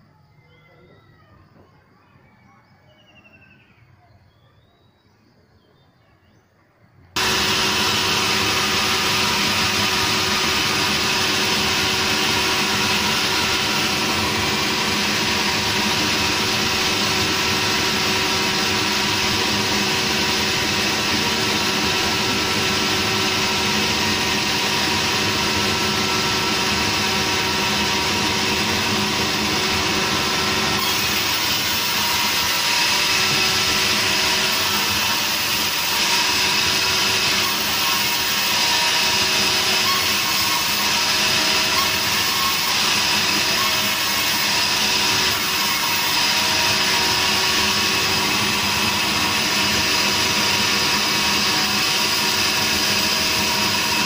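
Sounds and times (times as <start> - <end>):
sawmill machinery drone: 7.2 - 54.0.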